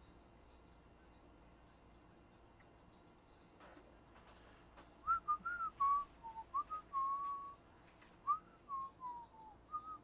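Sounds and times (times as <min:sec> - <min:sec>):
man whistling a tune: 0:05.0 - 0:07.6, 0:08.2 - 0:10.0.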